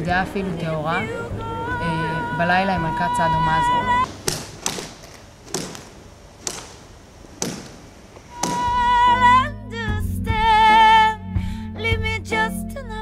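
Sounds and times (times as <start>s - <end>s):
high singing voice with vibrato: 0.0s - 4.1s, 8.3s - 11.2s
sharp ringing cracks: 4.0s - 8.9s.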